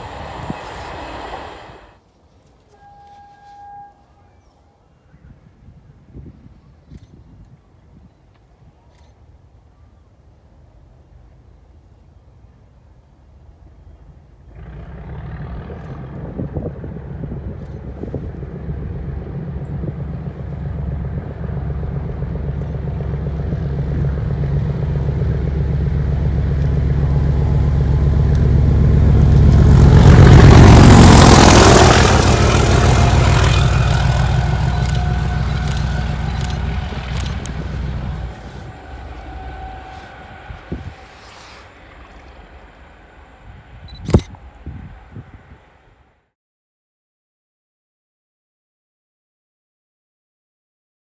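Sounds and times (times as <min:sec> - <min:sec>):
wheel and rail noise: 0:00.0 - 0:05.0, 0:06.5 - 0:46.2
diesel locomotive engine drone: 0:00.0 - 0:46.3.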